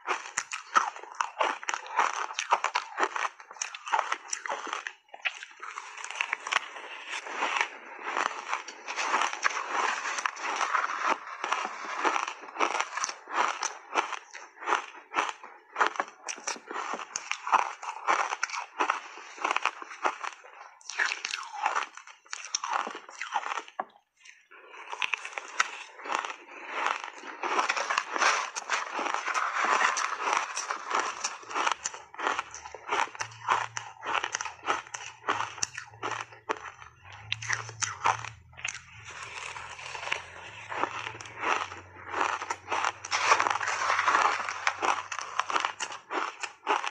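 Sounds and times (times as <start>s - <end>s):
spoon scooping through ice: 0.0s - 14.5s, 24.9s - 46.9s
chewing crunchy ice: 0.0s - 46.9s.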